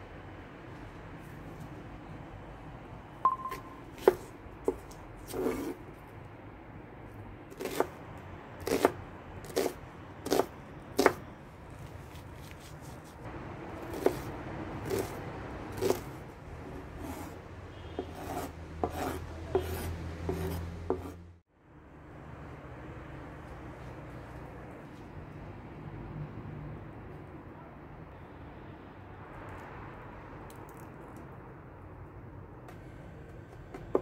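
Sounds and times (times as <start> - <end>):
knife chopping on wooden board: 3.4 - 5.8, 7.5 - 8.0, 8.6 - 11.2, 13.8 - 16.1, 17.0 - 21.2
knife slicing scrapes: 4.0 - 5.8, 7.5 - 8.0, 8.6 - 11.2, 12.1 - 21.2.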